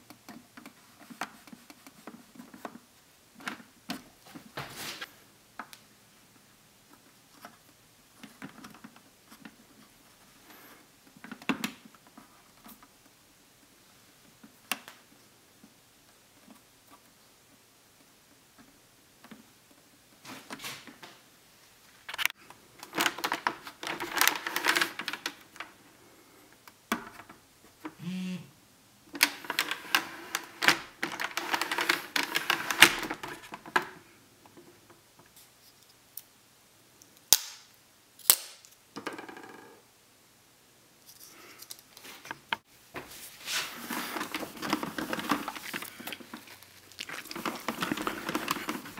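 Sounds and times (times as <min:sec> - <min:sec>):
plastic clicking and scraping: 0:29.1 - 0:34.7, 0:43.8 - 0:48.9.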